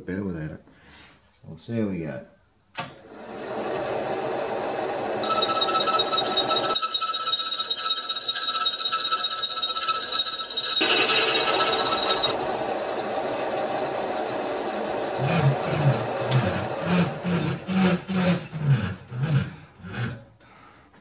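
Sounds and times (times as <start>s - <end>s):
milling machine running: 3.0s - 19.0s
drill cutting whine: 3.2s - 18.7s.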